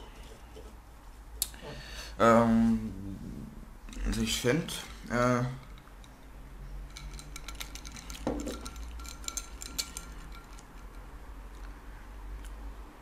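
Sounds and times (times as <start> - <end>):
ice cubes clinking in glass: 6.8 - 11.0.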